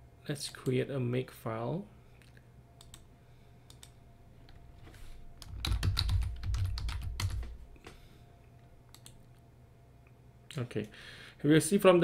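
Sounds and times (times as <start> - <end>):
typing on computer keyboard: 5.4 - 7.5.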